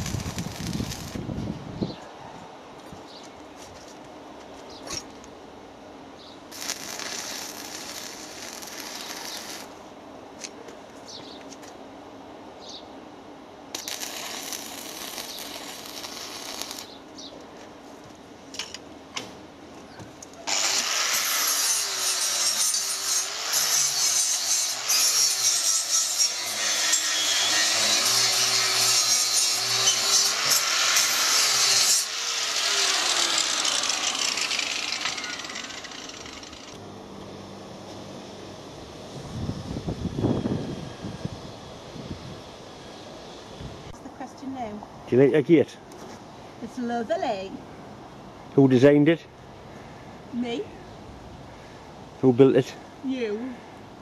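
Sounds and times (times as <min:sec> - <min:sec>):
welding arc crackle: 0:00.0 - 0:01.3, 0:06.5 - 0:09.8, 0:13.7 - 0:17.0, 0:20.4 - 0:36.8
angle grinder grinding steel: 0:06.6 - 0:09.7, 0:20.5 - 0:36.8.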